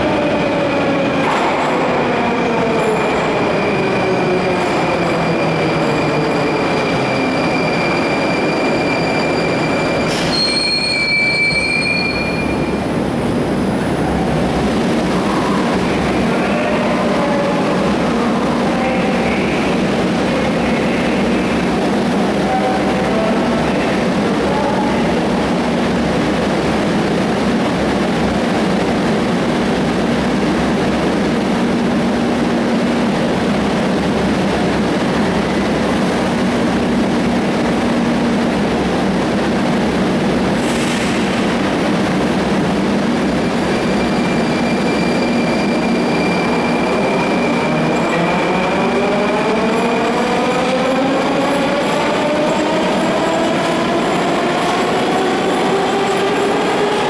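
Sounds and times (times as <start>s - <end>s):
train humming: 12.4s - 57.0s.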